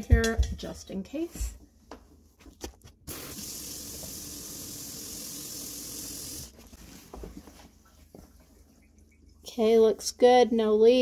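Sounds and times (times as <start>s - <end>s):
faucet water running into sink: 3.1s - 6.6s.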